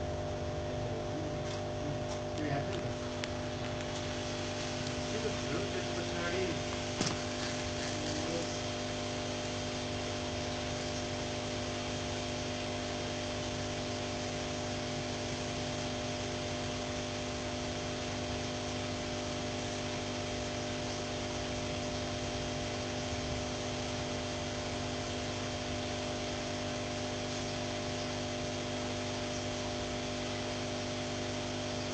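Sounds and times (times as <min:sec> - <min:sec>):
steady machine hum with hiss: 0:00.0 - 0:31.9.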